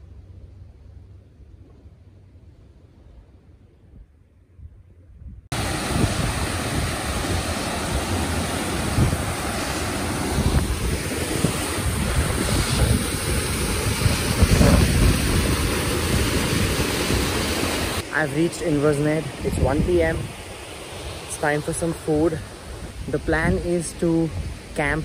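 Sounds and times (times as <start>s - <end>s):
wind buffeting microphone: 2.9s - 18.0s, 19.2s - 21.2s
waterfall rushing: 5.5s - 25.0s.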